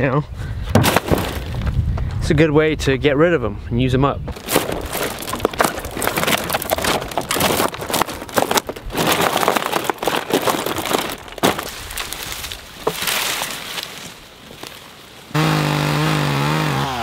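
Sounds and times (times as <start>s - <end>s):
sticks snapping underfoot: 4.3s - 14.8s.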